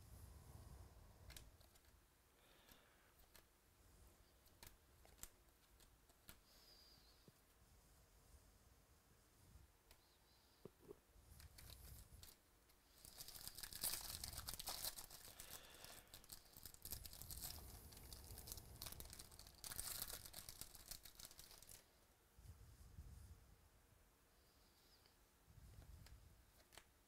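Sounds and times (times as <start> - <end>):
foil wrapper tearing and crinkling: 13.0 - 21.8.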